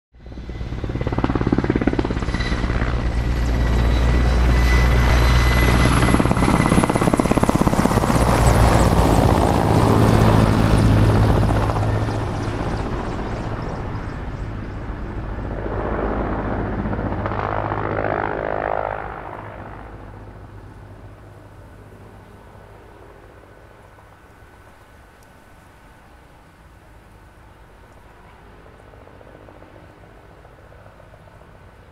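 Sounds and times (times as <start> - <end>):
helicopter rotor beating: 0.2 - 23.8
helicopter engine whine: 0.2 - 25.0, 26.4 - 31.9.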